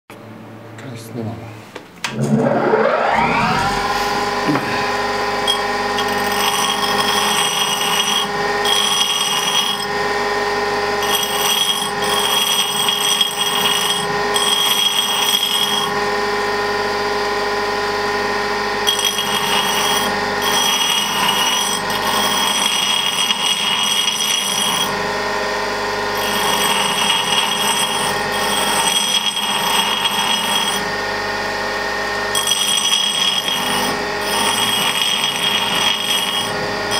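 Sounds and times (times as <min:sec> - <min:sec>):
bench grinder whine: 0:02.1 - 0:36.9
drill bit grinding hiss: 0:05.4 - 0:09.9, 0:11.0 - 0:16.0, 0:18.8 - 0:25.0, 0:26.1 - 0:30.9, 0:32.3 - 0:36.9.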